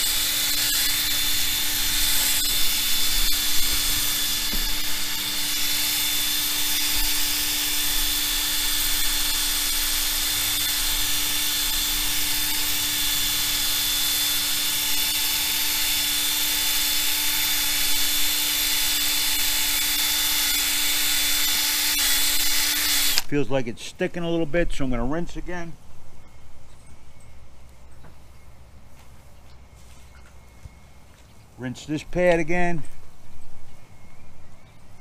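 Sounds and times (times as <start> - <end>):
electric drill whining: 0.0 - 23.3.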